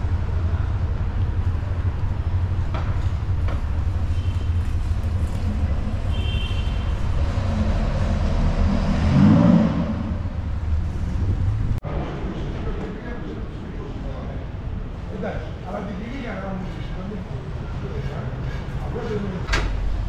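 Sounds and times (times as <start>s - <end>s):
traffic rumble: 0.0s - 20.0s
vehicle passing close: 6.7s - 11.8s.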